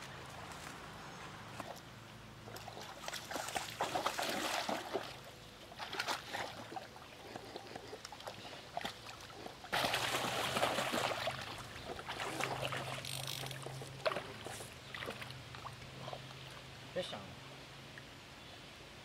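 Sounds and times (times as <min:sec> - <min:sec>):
low steady hum: 0:00.0 - 0:19.0
river water splashing: 0:01.4 - 0:16.9.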